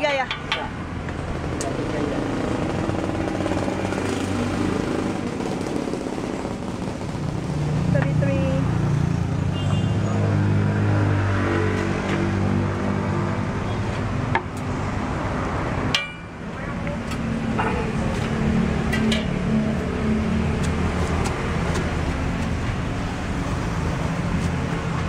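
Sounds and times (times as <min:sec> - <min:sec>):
engine hum: 0:00.0 - 0:09.4
passing traffic: 0:00.0 - 0:25.0.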